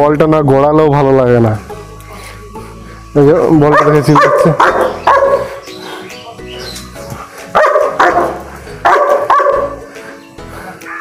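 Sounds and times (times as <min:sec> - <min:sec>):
dog barking: 0:03.7 - 0:05.6, 0:07.5 - 0:09.9.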